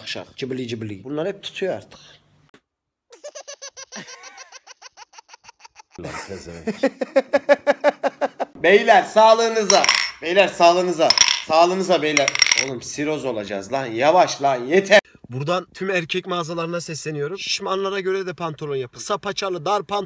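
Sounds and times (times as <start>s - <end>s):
man laughing: 3.2s - 4.8s, 5.9s - 8.5s.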